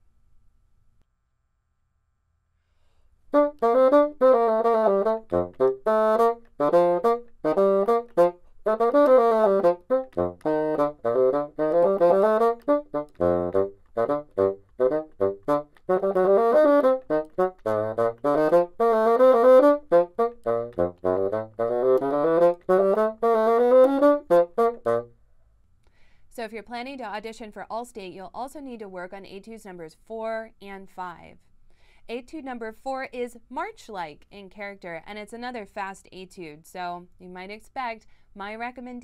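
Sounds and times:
solo bassoon playing fast runs: 0:03.3 - 0:25.2.

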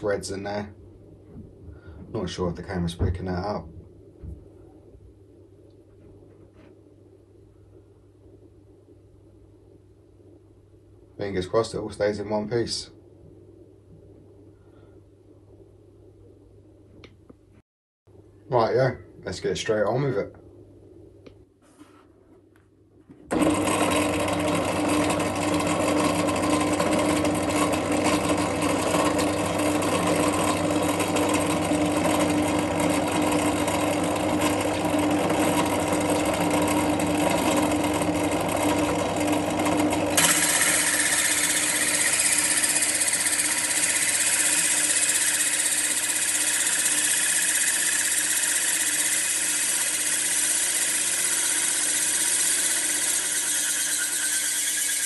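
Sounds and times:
drill bit grinding stone: 0:23.3 - 0:55.0
drill press motor hum: 0:23.3 - 0:55.0.

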